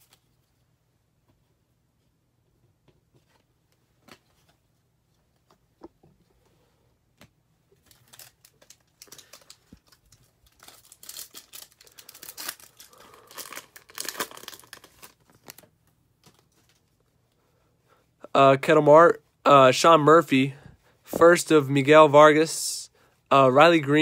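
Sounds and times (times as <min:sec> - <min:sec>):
foil wrapper crinkling and tearing: 0:07.8 - 0:16.8.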